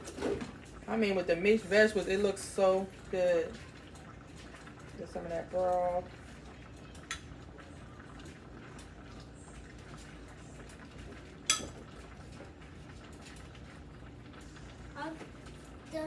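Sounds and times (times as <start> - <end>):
metal ladle clinking on dishes: 11.5 - 11.8.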